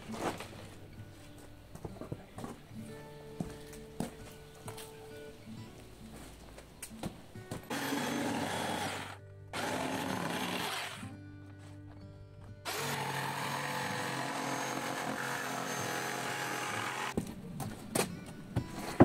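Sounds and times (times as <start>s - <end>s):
background music: 0.0s - 19.0s
power tool running: 7.7s - 11.0s, 12.7s - 17.2s.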